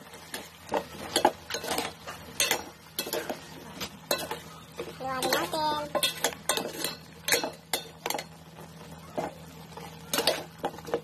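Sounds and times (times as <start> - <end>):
spoon scraping metal pot: 0.7 - 3.5, 4.1 - 8.2.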